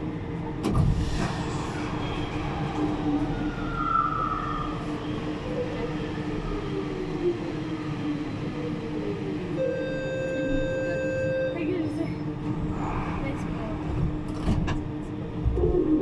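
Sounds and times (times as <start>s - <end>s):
passing train gliding tones: 1.3s - 16.0s
train rolling noise: 11.7s - 16.0s.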